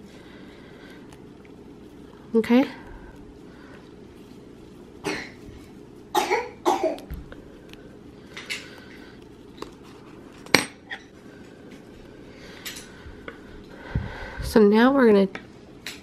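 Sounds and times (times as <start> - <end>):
person coughing: 5.0 - 5.4, 6.1 - 7.1.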